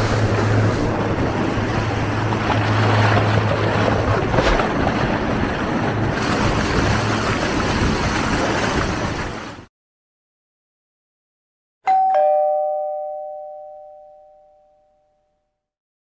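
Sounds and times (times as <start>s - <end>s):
boat engine humming: 0.0s - 9.7s
water rushing along boat hull: 0.0s - 9.7s
wind buffeting microphone: 0.0s - 9.7s.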